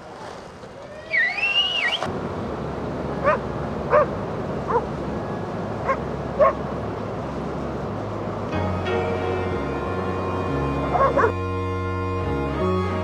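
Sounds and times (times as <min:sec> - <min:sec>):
steady background rush: 0:00.0 - 0:13.0
dog yipping: 0:10.9 - 0:11.4.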